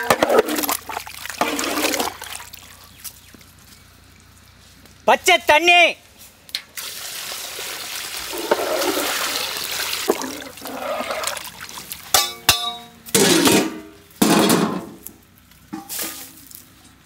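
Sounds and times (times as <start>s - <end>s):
water pouring into pot: 6.8s - 11.9s
metal lid scraping on pot: 8.3s - 9.1s
metal lid clanking: 12.2s - 15.0s.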